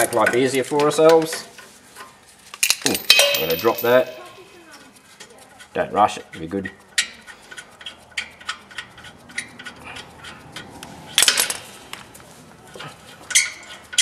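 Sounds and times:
metal clatter: 0:00.0 - 0:04.4, 0:05.6 - 0:11.8.

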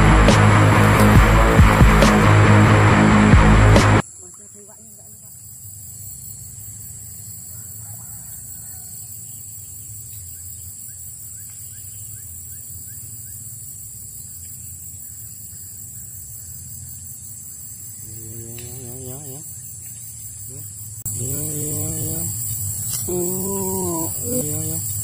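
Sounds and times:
low hum: 0:00.0 - 0:04.0
high-pitched insect drone: 0:03.6 - 0:25.0.

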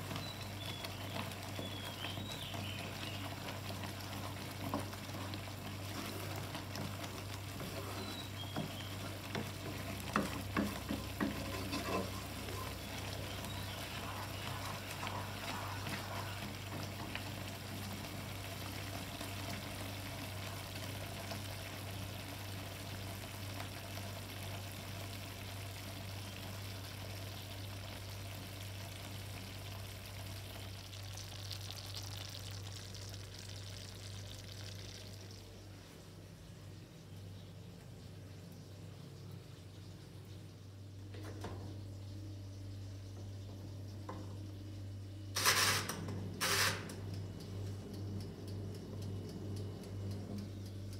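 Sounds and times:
sauce sizzling and bubbling: 0:00.0 - 0:36.8
steady low hum: 0:30.4 - 0:50.9.

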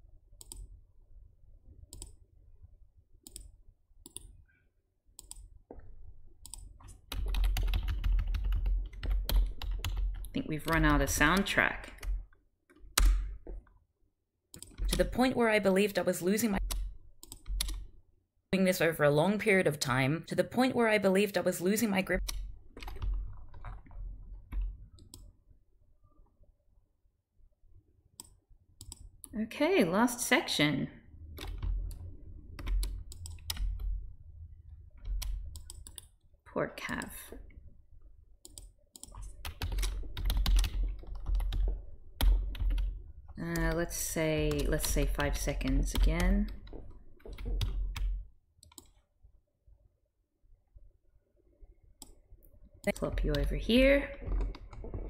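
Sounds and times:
computer mouse clicks: 0:00.4 - 0:00.7, 0:01.9 - 0:02.2, 0:03.2 - 0:04.4, 0:05.2 - 0:05.5, 0:06.4 - 0:12.1, 0:14.5 - 0:15.1, 0:16.6 - 0:17.8, 0:22.2 - 0:25.3, 0:28.2 - 0:29.1, 0:31.4 - 0:33.9, 0:35.0 - 0:36.1, 0:38.4 - 0:42.9, 0:44.4 - 0:49.0
typing on a computer keyboard: 0:06.4 - 0:12.3, 0:16.6 - 0:17.9, 0:22.2 - 0:25.2, 0:31.4 - 0:34.0, 0:35.0 - 0:36.1, 0:38.4 - 0:43.8, 0:44.4 - 0:49.0, 0:54.2 - 0:55.0.

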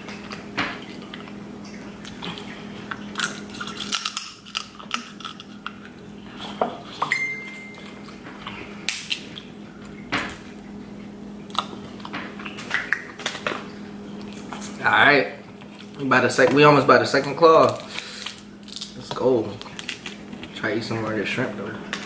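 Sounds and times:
crab shells cracking: 0:00.0 - 0:07.1, 0:07.8 - 0:09.6, 0:15.6 - 0:20.6
steady low hum: 0:00.0 - 0:22.0.

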